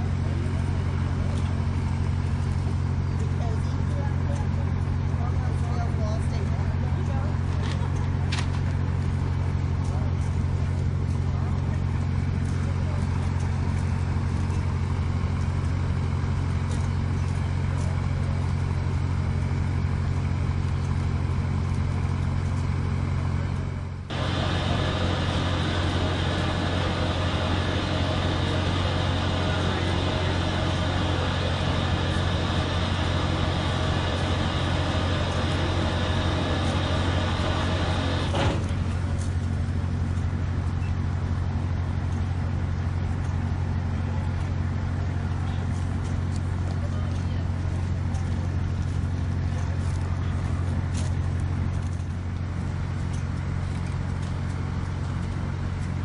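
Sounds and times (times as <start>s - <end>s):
low mechanical hum: 0.0s - 56.0s
hiss: 24.1s - 38.8s.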